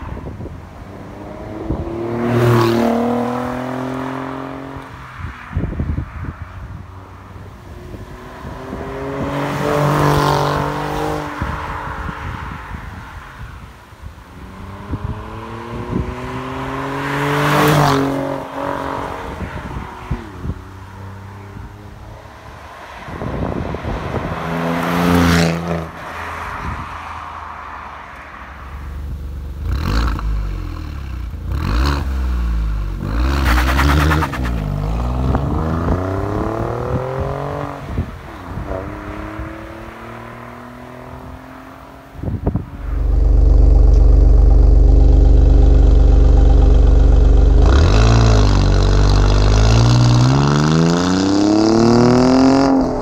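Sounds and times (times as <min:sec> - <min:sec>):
car exhaust revving: 0:31.4 - 0:35.5, 0:42.6 - 0:53.0.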